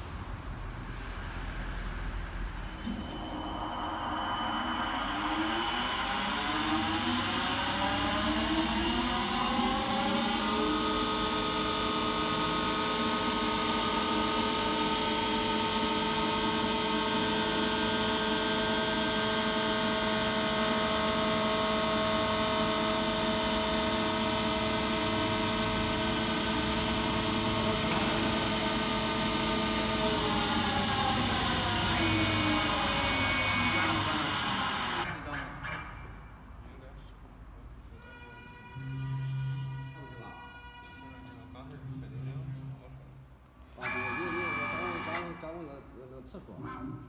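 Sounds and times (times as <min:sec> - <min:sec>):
wood lathe motor whine: 0:02.9 - 0:35.1, 0:43.8 - 0:45.4.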